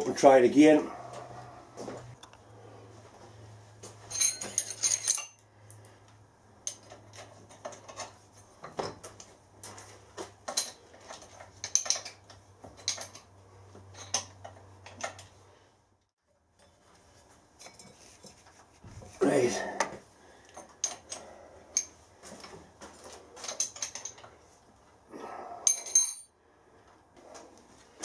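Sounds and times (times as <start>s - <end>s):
metal tools clinking: 4.0s - 5.5s, 10.4s - 15.3s, 17.6s - 18.4s, 23.3s - 24.4s, 25.6s - 26.3s.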